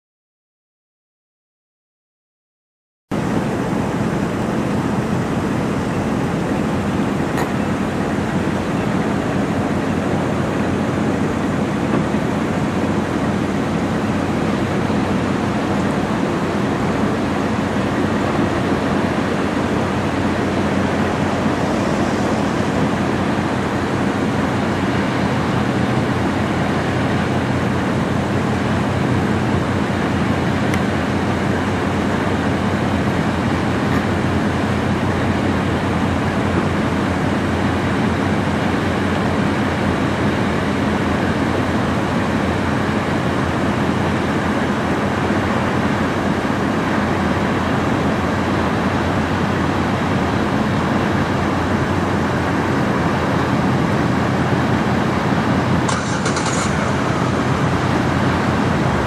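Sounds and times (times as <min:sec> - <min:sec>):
ship engines droning: 0:03.1 - 0:59.0
wind: 0:03.1 - 0:59.0
rushing water: 0:03.2 - 0:59.0.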